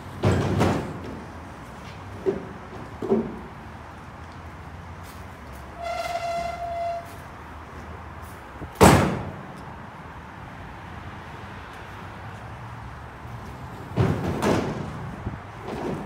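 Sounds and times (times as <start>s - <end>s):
wooden board banging into truck bed: 0.2s - 1.2s, 8.8s - 9.3s, 14.0s - 15.0s.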